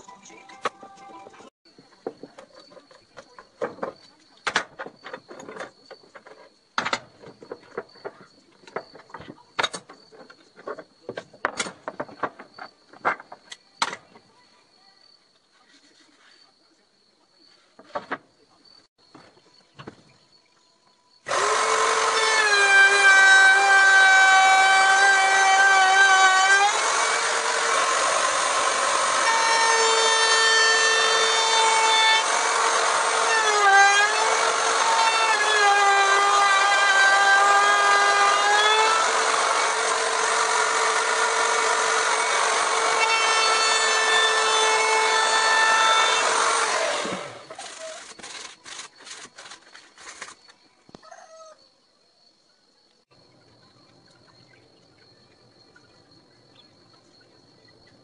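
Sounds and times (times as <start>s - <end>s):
power tool whining cutting wood: 21.3s - 50.3s.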